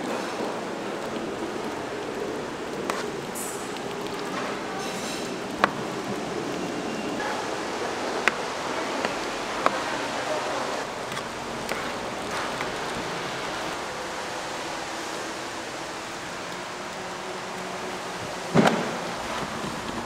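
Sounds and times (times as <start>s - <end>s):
oil sizzling in a fryer: 0.1s - 10.2s.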